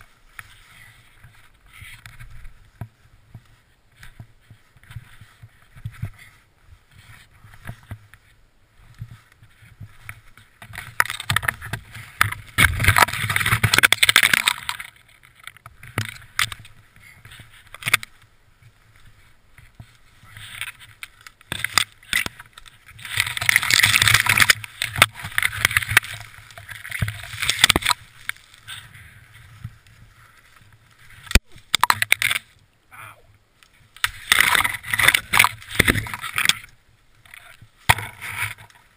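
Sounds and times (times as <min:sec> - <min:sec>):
snow crunching and shuffling: 0:00.0 - 0:31.7.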